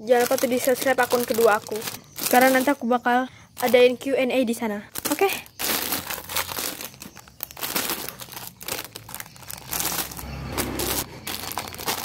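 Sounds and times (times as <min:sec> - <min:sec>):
plastic bags crinkling: 0:00.0 - 0:03.0, 0:03.6 - 0:04.1, 0:04.9 - 0:12.0.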